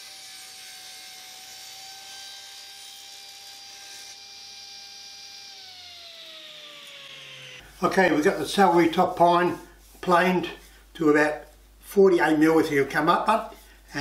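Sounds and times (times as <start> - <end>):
table saw whining: 0.0 - 7.7.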